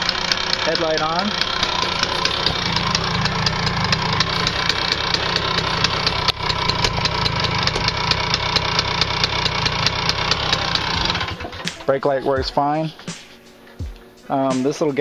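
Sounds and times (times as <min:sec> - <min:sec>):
moped engine idling: 0:00.0 - 0:13.1.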